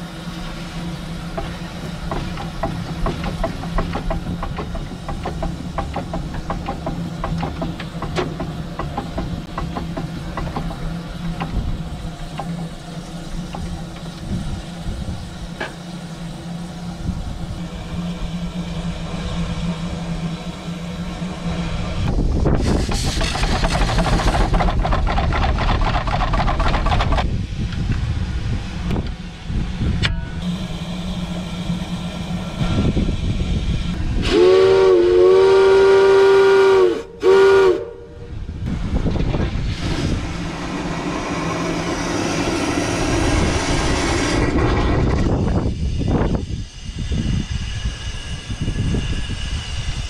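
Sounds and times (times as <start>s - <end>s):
steam engine clatter and hiss: 0.0s - 50.0s
steam whistle blasts: 34.2s - 38.4s.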